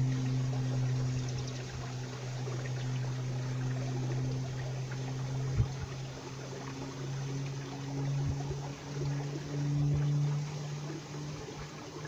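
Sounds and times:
steady low hum: 0.0s - 12.0s
stream water trickling: 0.0s - 12.0s.

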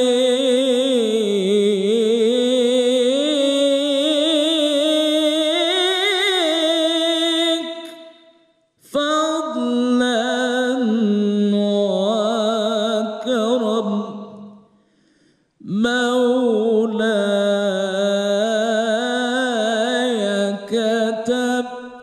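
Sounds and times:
man chanting: 0.0s - 8.2s, 8.8s - 14.5s, 15.6s - 22.0s.

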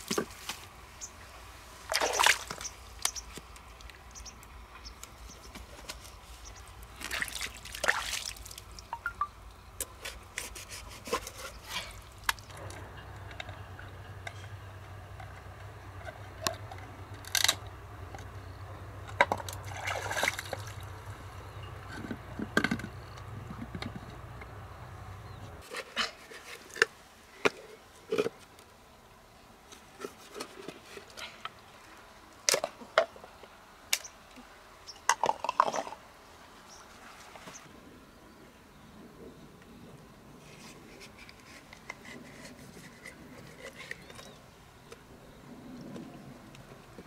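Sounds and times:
low steady hum: 11.3s - 25.6s.

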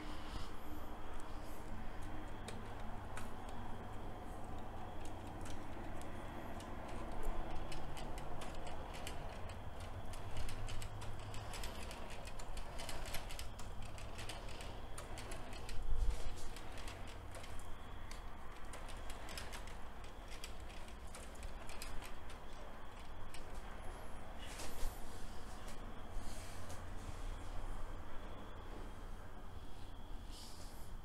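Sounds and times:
plastic gears clicking: 2.0s - 23.8s.

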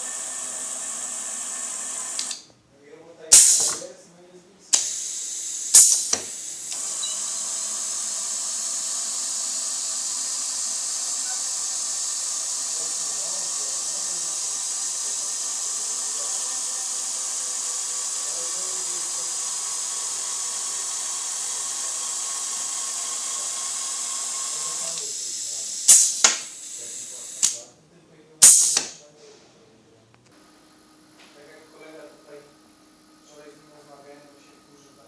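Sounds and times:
compressed air hissing: 3.3s - 3.9s, 4.7s - 27.6s, 28.4s - 29.0s
electric drive whine: 4.8s - 27.6s.

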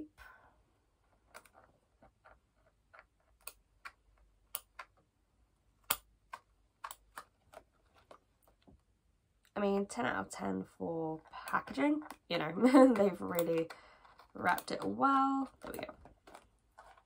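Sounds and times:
scissors snipping tape: 12.9s - 17.0s.

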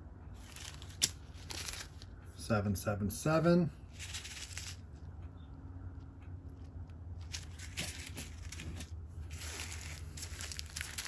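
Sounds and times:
steady low hum: 0.0s - 11.0s
plastic bags crinkling: 0.4s - 2.1s, 3.9s - 4.9s, 7.2s - 11.0s.

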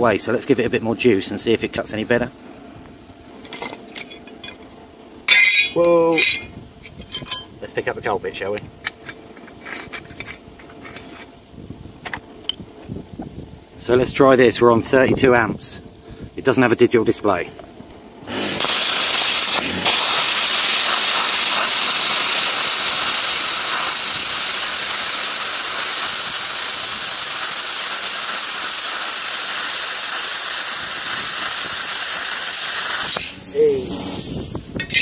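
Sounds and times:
plasma cutter hissing: 18.2s - 35.0s.

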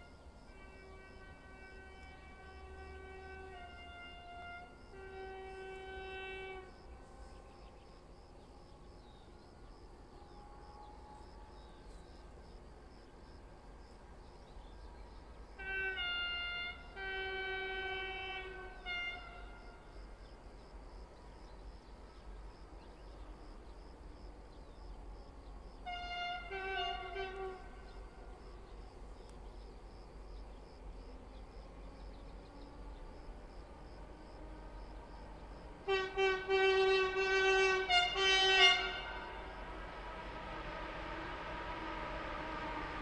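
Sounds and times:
locomotive air horn blasts: 0.0s - 7.8s, 15.6s - 20.2s, 25.8s - 28.4s, 35.8s - 43.0s.

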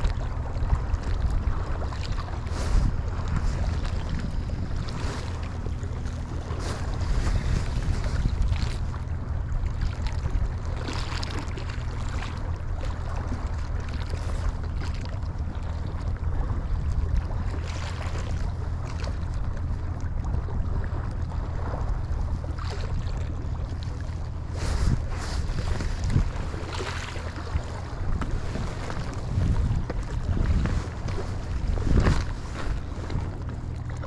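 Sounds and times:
sea waves washing: 0.0s - 34.0s
steady low drone: 0.0s - 34.0s
wind buffeting microphone: 0.0s - 34.0s.

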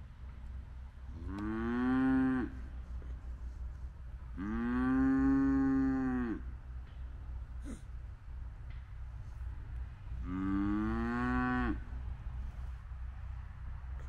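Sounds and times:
cattle mooing: 1.2s - 2.6s, 4.4s - 6.5s, 10.2s - 11.9s.

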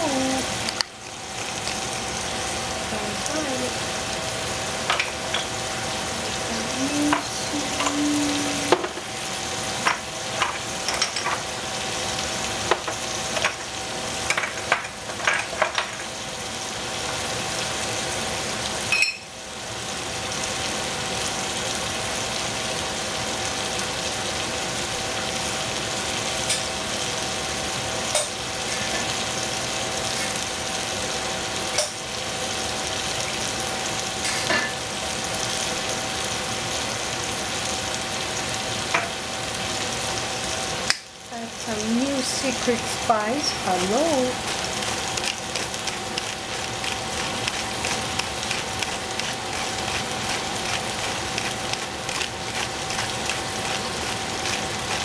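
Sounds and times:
greens sizzling in a pot: 0.0s - 55.0s.

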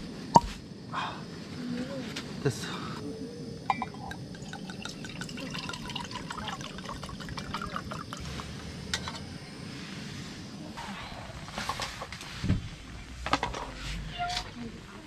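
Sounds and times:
metal mugs clinking: 3.7s - 8.3s
wine glugging from bottle: 3.7s - 8.3s.

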